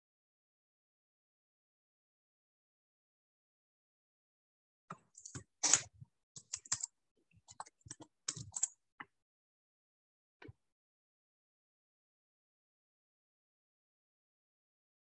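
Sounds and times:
typing on keyboard: 5.1 - 8.8.

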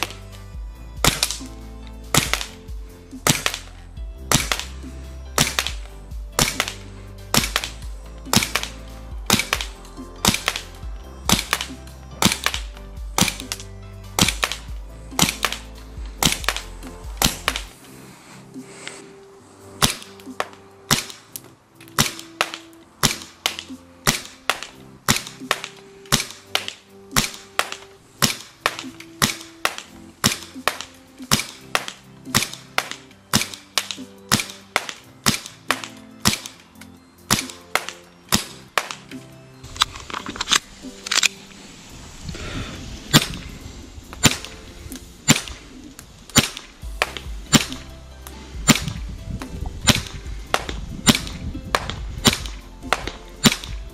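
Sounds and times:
airsoft pistol shots: 1.0 - 1.5, 2.1 - 2.6, 3.2 - 3.7, 4.3 - 4.8, 5.4 - 13.6, 14.2 - 17.7, 19.8 - 21.3, 21.9 - 36.6, 37.3 - 39.0, 43.1 - 43.5, 44.2 - 44.6, 45.2 - 45.7, 46.3 - 47.9, 48.6 - 49.0, 49.8 - 53.9.

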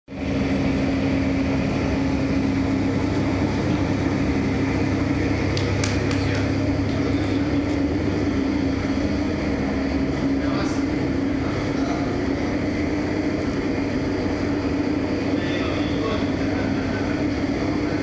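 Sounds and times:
machine drone with low hum: 0.1 - 18.0.

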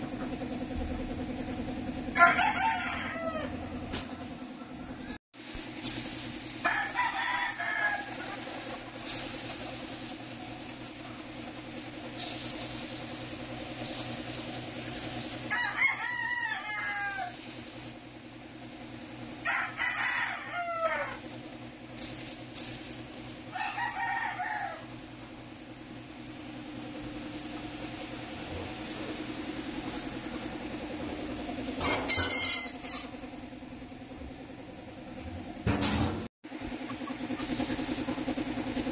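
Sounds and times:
rooster crowing: 2.1 - 3.9, 6.6 - 8.8, 15.5 - 17.8, 19.4 - 21.2, 23.5 - 25.0, 31.8 - 33.2
short bursts of hissing: 5.4 - 6.7, 7.4 - 10.2, 12.2 - 15.5, 16.7 - 18.0, 22.0 - 23.1, 37.4 - 38.2
steady low hum: 24.7 - 32.1.

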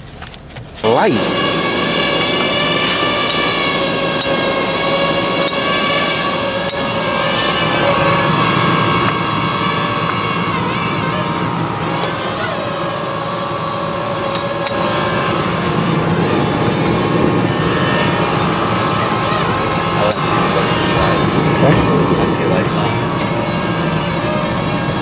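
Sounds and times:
drone rotors whining: 0.0 - 25.0
low hum: 0.0 - 25.0.

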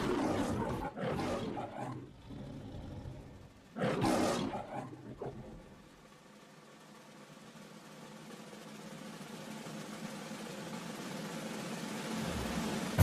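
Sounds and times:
lion roaring: 0.0 - 5.8
faint steady hum: 0.0 - 13.0.

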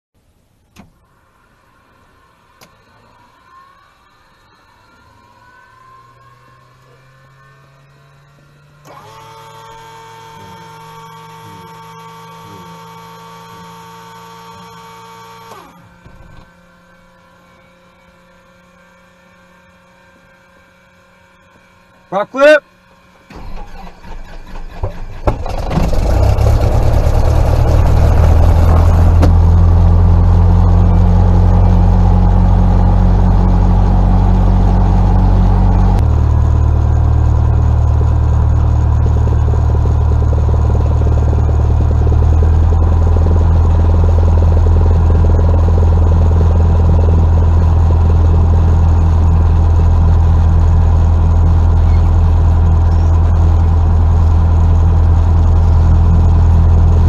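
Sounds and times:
piston aircraft engine running: 0.8 - 57.0.

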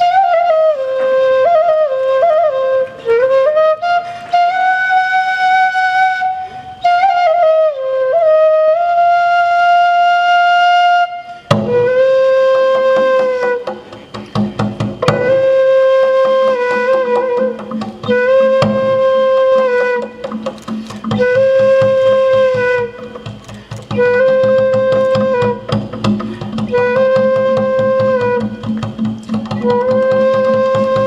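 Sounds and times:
flute melody: 0.0 - 31.0
drum strokes: 11.4 - 31.0.

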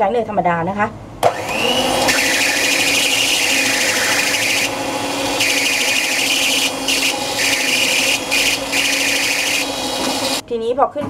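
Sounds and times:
stand mixer motor hum: 1.2 - 10.4
beaters scraping metal bowl: 2.0 - 10.4.

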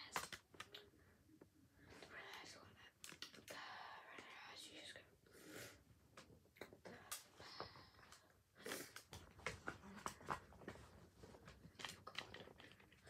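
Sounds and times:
breathing and sniffing: 5.3 - 5.9.

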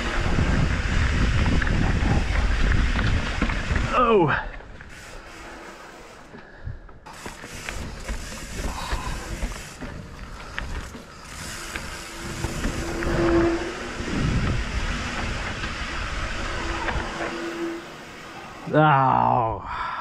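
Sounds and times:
wind on microphone: 0.0 - 4.0, 11.7 - 17.6
bike rattling clicks and knocks: 0.0 - 13.2, 13.8 - 17.3
bike tyres on dirt: 0.0 - 19.5.

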